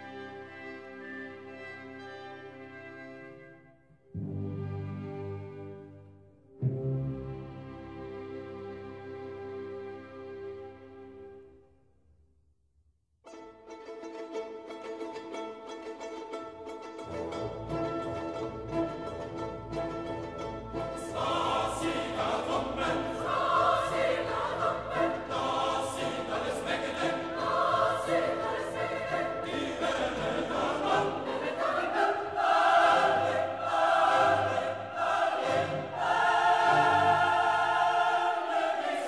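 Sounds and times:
orchestral accompaniment: 0.0 - 11.4, 13.3 - 39.0
choir singing: 20.2 - 39.0.

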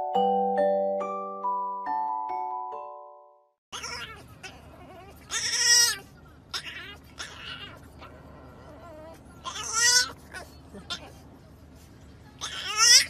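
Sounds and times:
mallet percussion tune: 0.0 - 3.1
puppy whining: 3.7 - 11.2.

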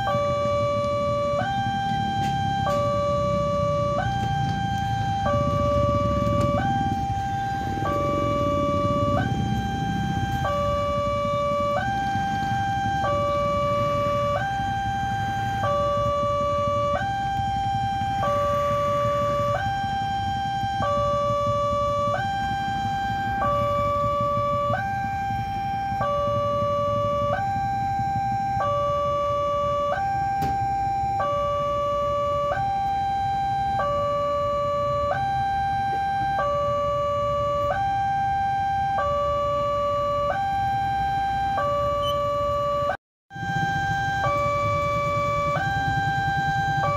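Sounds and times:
two-tone crossing alarm: 0.0 - 46.9.

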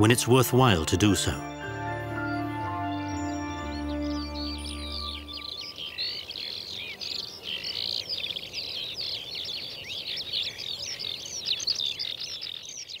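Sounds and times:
birds singing in chorus: 3.1 - 13.0.

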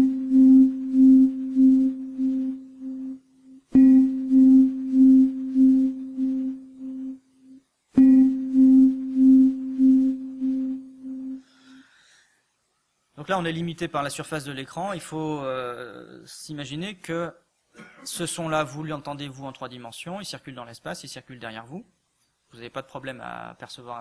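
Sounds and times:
ringing bell-like tone: 3.8 - 4.8, 8.0 - 9.6.

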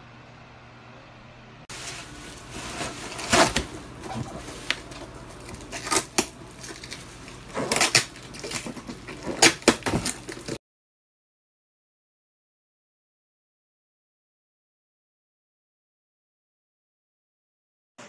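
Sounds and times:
cardboard box scraping and rustling: 1.7 - 10.6.

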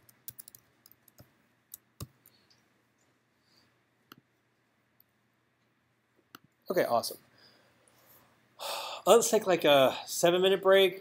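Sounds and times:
computer keys clicking: 0.0 - 2.5.

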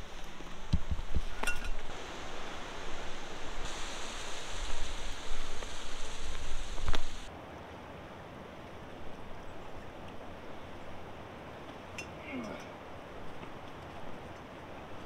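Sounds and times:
river rapids rushing: 0.0 - 7.3
wind buffeting microphone: 0.0 - 7.3.

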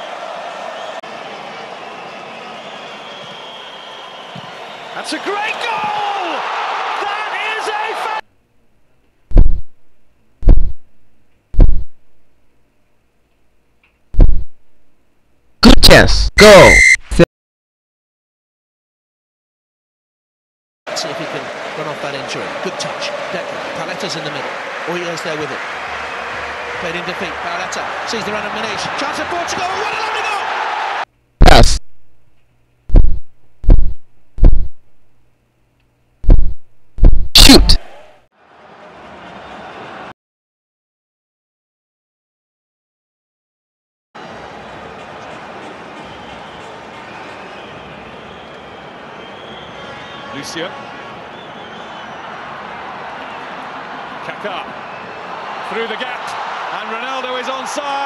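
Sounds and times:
heavy deep booming thumps: 9.3 - 9.8, 10.4 - 10.9, 11.6 - 12.2, 14.2 - 14.6, 32.9 - 34.9, 36.2 - 37.4
loud deep thuds: 9.3 - 9.8, 10.4 - 10.9, 11.6 - 12.1, 32.9 - 34.9, 36.2 - 37.8.

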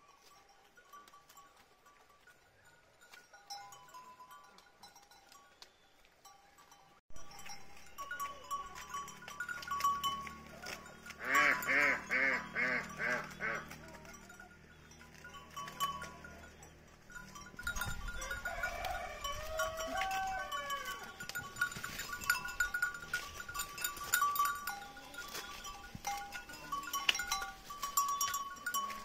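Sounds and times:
goat bleating: 7.9 - 14.4, 17.7 - 29.0.

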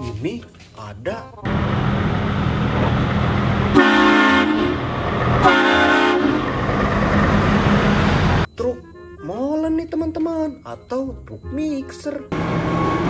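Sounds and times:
diesel truck engine running: 1.3 - 13.0
truck air horn blasts: 3.7 - 6.6.

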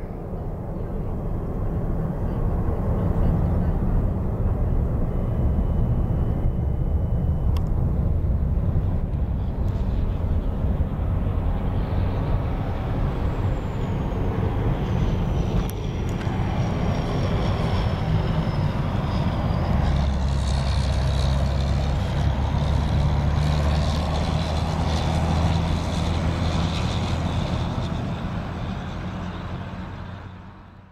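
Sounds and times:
diesel engine humming: 0.0 - 30.9
high falling whine: 4.0 - 26.5.

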